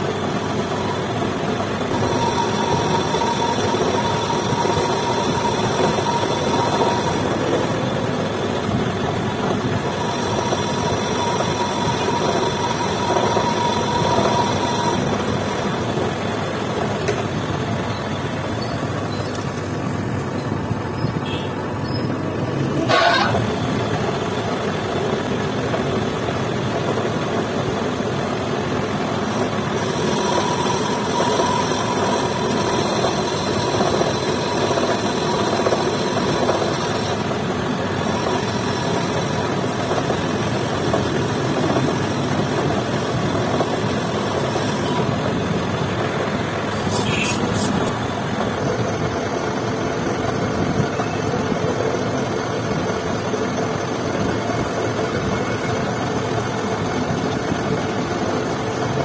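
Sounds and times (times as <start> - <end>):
metal lathe cutting steel: 0.0 - 20.9, 22.2 - 24.9, 28.4 - 50.6
thin whine: 0.0 - 24.3, 28.9 - 52.2
short rising squeal: 1.9 - 7.4, 21.8 - 23.6, 46.7 - 47.9.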